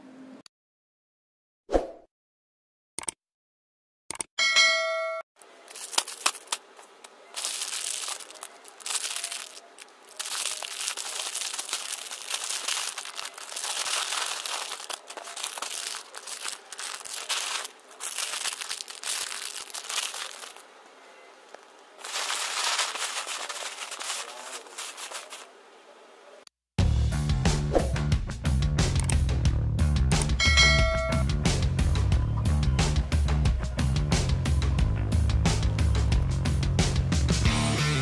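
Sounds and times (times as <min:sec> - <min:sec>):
plastic toy bricks rattling: 0:07.4 - 0:20.6.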